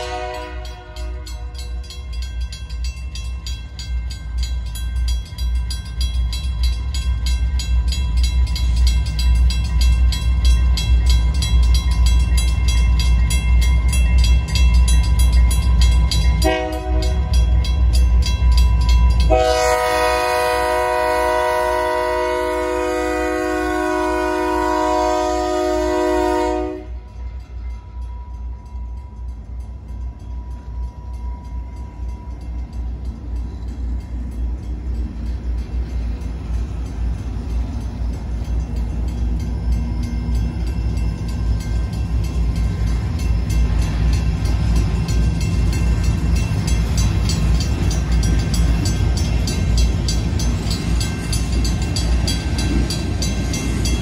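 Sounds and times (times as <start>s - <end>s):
train air horn: 0.0s - 1.5s, 16.4s - 17.2s, 19.3s - 27.1s
crossing bell ringing: 0.0s - 54.0s
diesel locomotive rumble: 0.0s - 54.0s.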